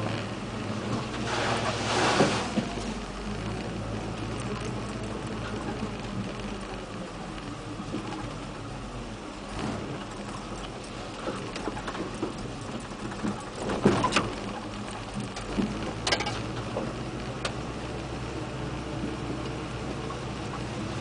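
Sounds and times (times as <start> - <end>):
truck knocks and rattles: 0.0 - 8.6, 9.4 - 17.9
low engine drone: 0.0 - 21.0.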